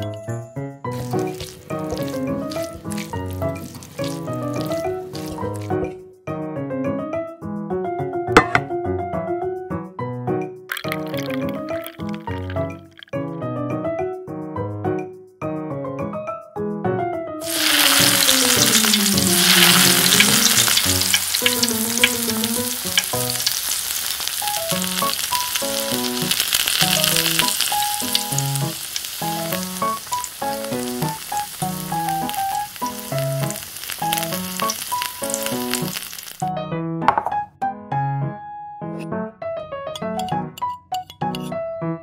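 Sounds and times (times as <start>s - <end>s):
light piano music: 0.0s - 42.0s
fish deep-frying in oil: 0.9s - 5.9s, 10.7s - 13.1s, 17.4s - 36.5s.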